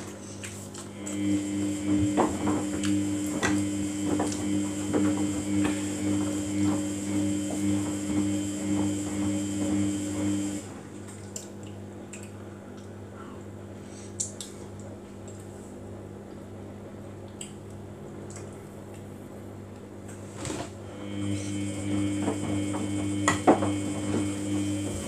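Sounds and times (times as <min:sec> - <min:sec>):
washing machine motor hum: 0:00.0 - 0:11.4, 0:17.9 - 0:25.0.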